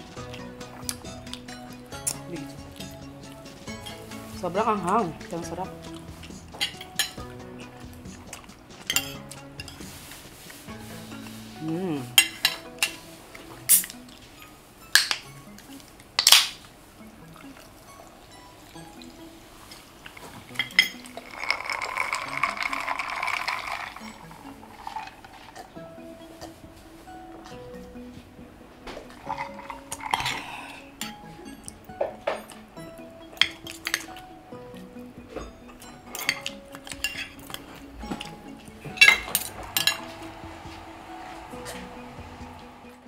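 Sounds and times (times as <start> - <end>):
faint background music: 0.0 - 43.0
cutlery clinking on a plate: 8.9 - 9.9, 12.2 - 13.0, 20.5 - 21.3, 35.7 - 38.3, 38.9 - 40.1.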